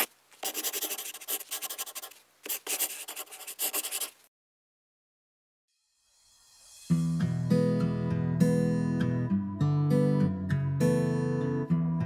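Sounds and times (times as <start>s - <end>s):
marker pen scratching: 0.0s - 4.2s.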